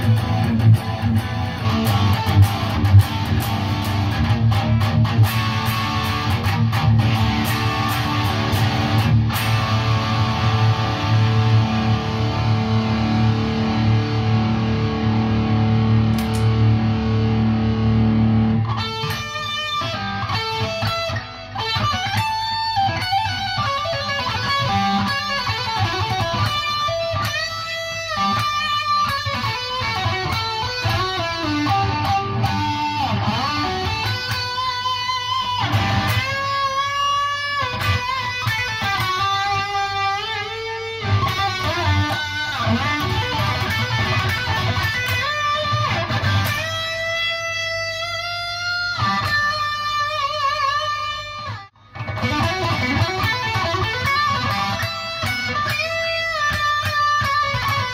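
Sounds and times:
electric guitar low chord: 0.0s - 22.2s
electric guitar lead lines: 0.0s - 57.9s.

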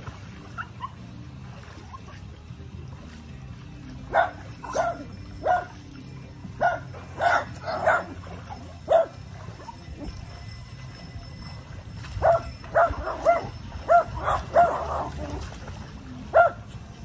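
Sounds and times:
small dog barking: 4.1s - 5.7s, 6.6s - 8.1s, 8.9s - 9.2s, 12.2s - 15.1s, 16.3s - 16.6s.

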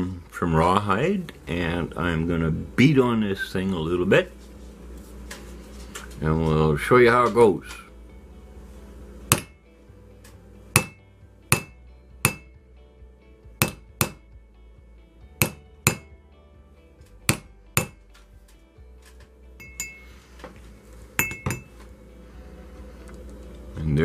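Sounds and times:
hammer striking metal stamp: 9.3s - 9.6s, 10.8s - 12.5s, 13.6s - 14.2s, 15.4s - 16.1s, 17.3s - 18.0s.

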